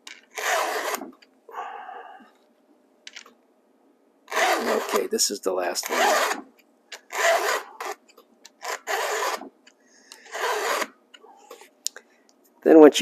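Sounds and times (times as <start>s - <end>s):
files rasping on chainsaw chain: 4.3s - 5.1s, 5.8s - 6.4s, 7.1s - 8.0s, 8.6s - 9.5s, 10.2s - 10.9s.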